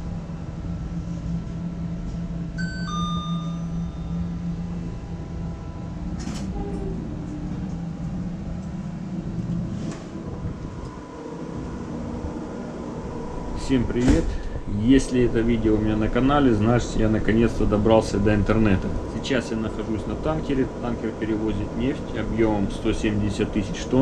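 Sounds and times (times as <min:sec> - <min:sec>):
low lift machinery hum: 0:00.0 - 0:24.0
two-tone ding-dong chime: 0:02.6 - 0:04.2.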